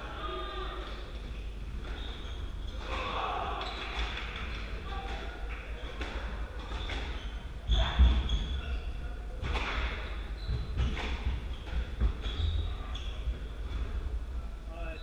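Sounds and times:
shoes squeaking on wooden floor: 1.3 - 2.8, 6.7 - 9.0, 9.6 - 13.8.

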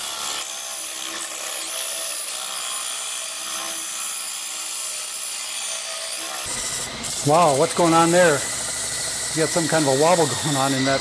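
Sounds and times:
cordless drill motor whine: 6.4 - 11.0.

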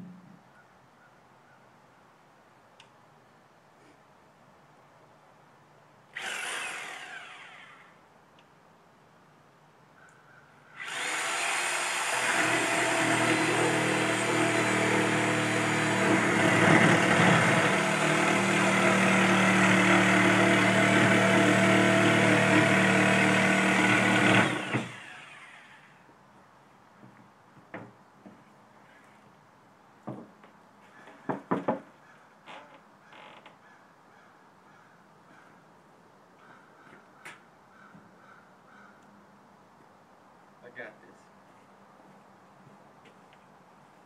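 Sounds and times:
reciprocating saw cutting: 6.2 - 8.0, 10.8 - 26.0.

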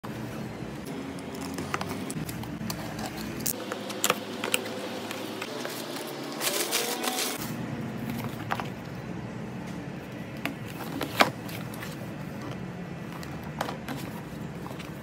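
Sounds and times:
plastic wrap crinkling: 4.3 - 7.4
steady low hum: 7.4 - 15.0.

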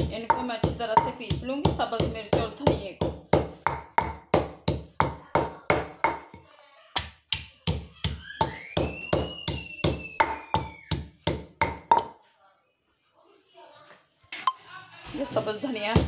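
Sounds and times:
pestle pounding in stone mortar: 0.0 - 6.4, 7.0 - 12.2
thin whistling tone: 8.3 - 10.9.

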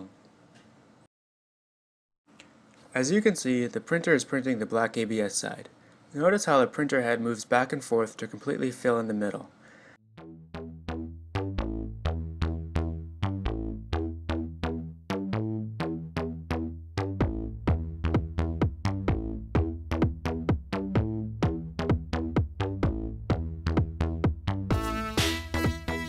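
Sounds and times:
electronic background music: 10.1 - 26.0.

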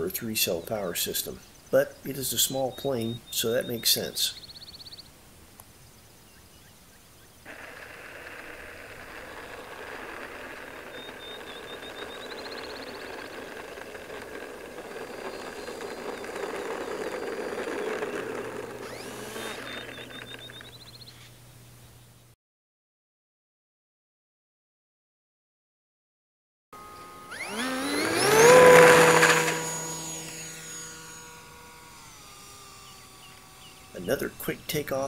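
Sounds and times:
model plane electric motor: 7.5 - 21.1, 26.8 - 35.0.

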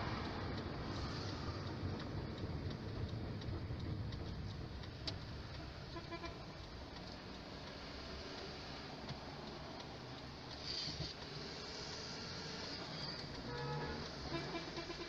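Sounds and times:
car engine and road rumble: 0.0 - 15.0
turn signal clicking: 0.2 - 12.0.

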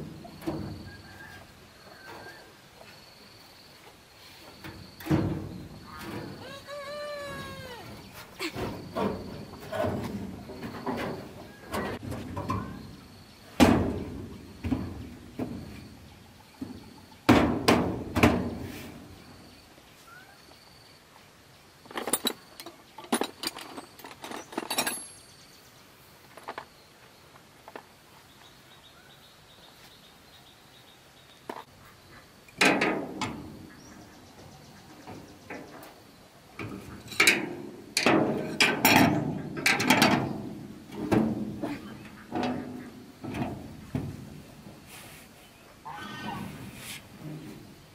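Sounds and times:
knocks and clanks on sheet metal: 0.0 - 1.0, 4.6 - 6.4, 8.4 - 12.9, 13.5 - 15.9, 16.6 - 18.8, 32.6 - 33.7, 36.6 - 44.5.

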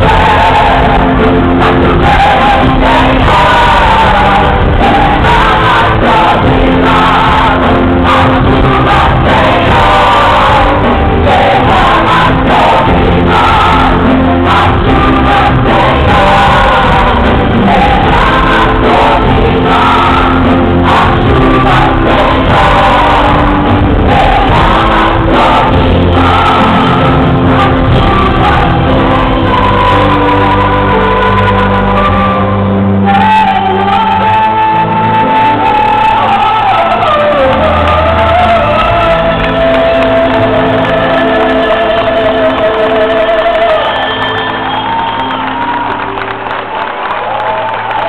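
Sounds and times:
crowd voices: 0.0 - 48.0
lead and choir vocals: 0.0 - 48.0
live gospel band: 0.0 - 48.0.

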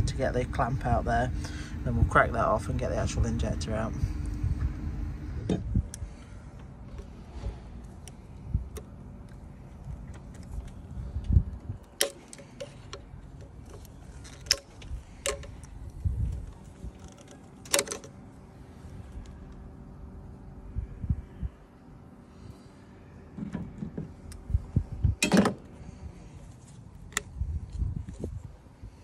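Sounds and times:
clicks of plastic and metal parts: 10.0 - 15.8, 16.9 - 18.2.

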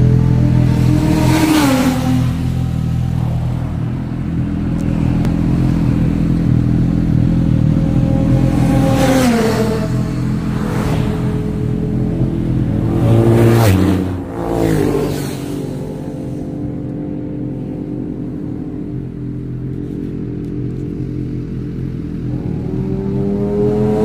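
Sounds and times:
motorcycle passing: 0.0 - 24.0
vehicle engines at highway speed: 0.0 - 24.0
vehicle passing pitch glide: 7.6 - 18.8.

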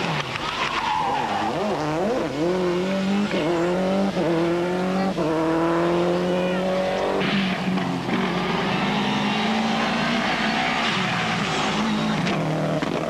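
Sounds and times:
rally car engine at full throttle: 0.0 - 13.0.

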